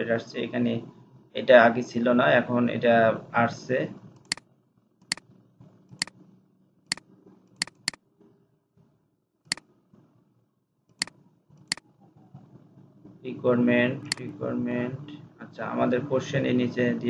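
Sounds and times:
computer mouse clicking: 0:06.9 - 0:08.0.

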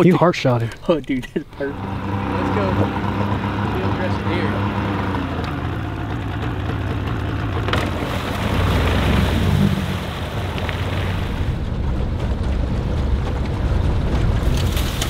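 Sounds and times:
outboard motor running: 0:01.2 - 0:15.0
water rushing: 0:01.6 - 0:11.8
wind noise: 0:08.0 - 0:15.0.

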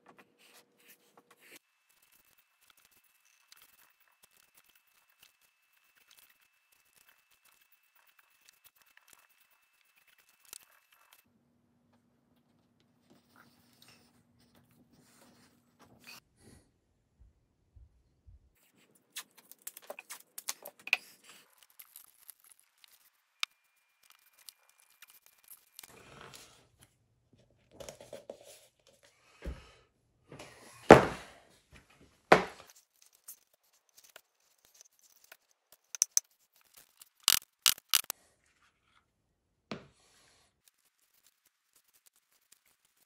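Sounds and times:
small clicks and taps: 0:35.8 - 0:36.3, 0:37.2 - 0:38.1
sharp clicks: 0:37.2 - 0:38.1.

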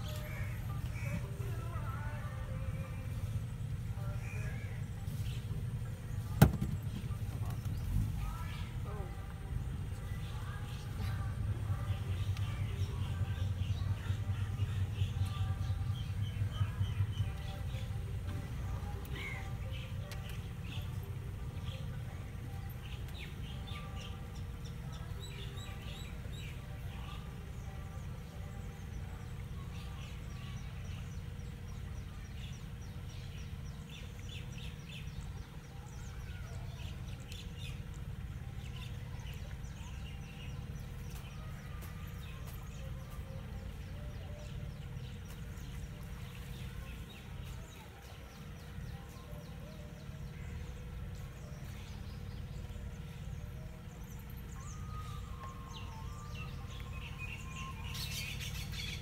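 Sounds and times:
low rumble: 0:00.0 - 0:35.3
birds chirping: 0:00.0 - 0:59.0
faint hum: 0:00.0 - 0:59.0.

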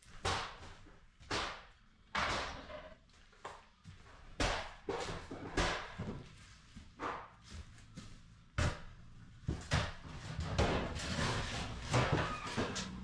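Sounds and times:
demolition knocks and thuds: 0:08.6 - 0:13.0.

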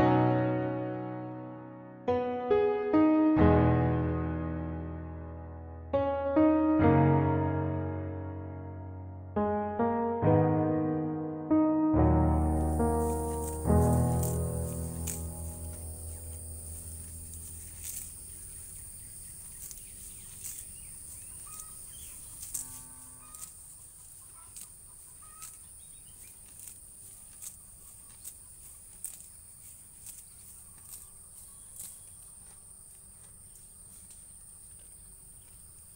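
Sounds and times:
cow tearing grass: 0:12.5 - 0:35.6
chicken calling: 0:20.4 - 0:26.2.

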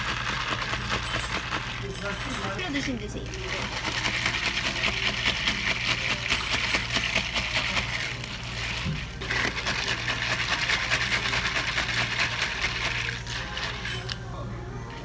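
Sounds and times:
ice cubes clinking in plastic cups: 0:00.0 - 0:14.2.

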